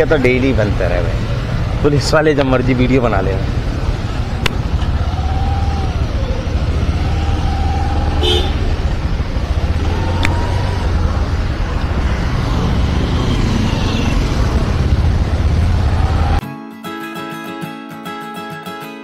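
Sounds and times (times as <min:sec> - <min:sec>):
traffic rumble: 0:00.0 - 0:16.4
vehicle horns honking: 0:08.2 - 0:08.8.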